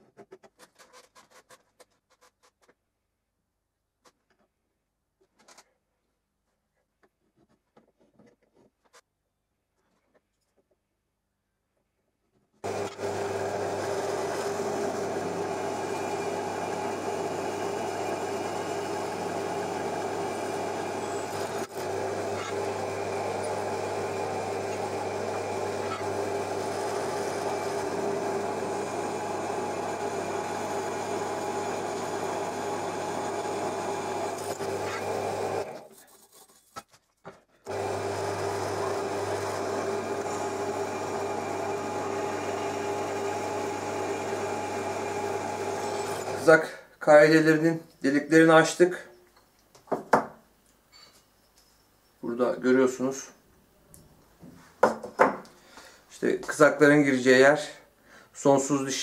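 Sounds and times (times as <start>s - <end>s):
drill press drilling into metal: 12.6s - 35.8s, 37.7s - 46.5s.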